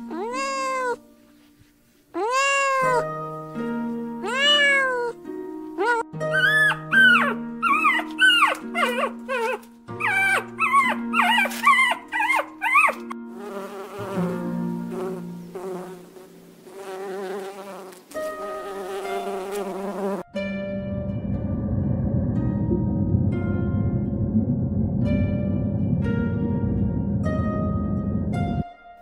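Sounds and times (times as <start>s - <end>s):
puppy whining and yelping: 5.8s - 13.2s
honeybee buzzing: 13.3s - 20.3s.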